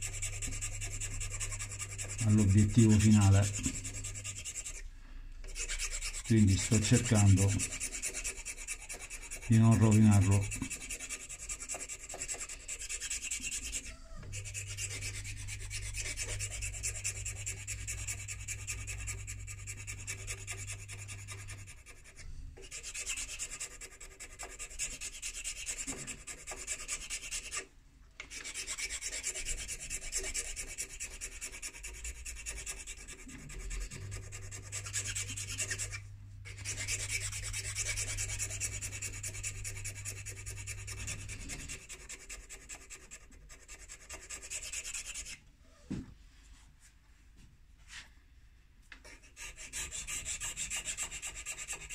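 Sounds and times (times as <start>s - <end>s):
file rasping on pipe stem: 0.0s - 4.8s, 5.4s - 45.4s, 49.0s - 51.9s
low steady hum: 33.3s - 42.0s.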